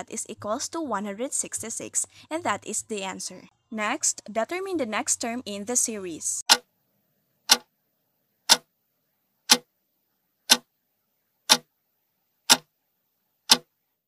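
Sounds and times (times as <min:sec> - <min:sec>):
clock ticking: 0:06.5 - 0:06.7, 0:07.5 - 0:07.7, 0:08.5 - 0:08.7, 0:09.5 - 0:09.7, 0:10.5 - 0:10.7, 0:11.5 - 0:11.7, 0:12.5 - 0:12.7, 0:13.5 - 0:13.7.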